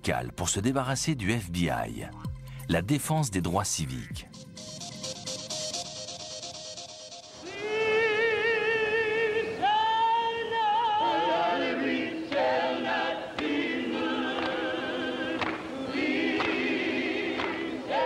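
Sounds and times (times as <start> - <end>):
gospel choir singing: 7.4 - 18.0.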